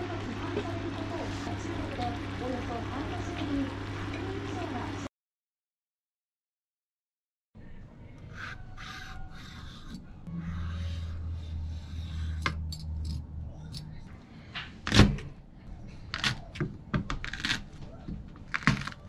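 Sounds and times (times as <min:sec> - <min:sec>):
low steady hum: 0:07.6 - 0:14.6
vegetable peeler scraping cucumber: 0:08.3 - 0:13.2.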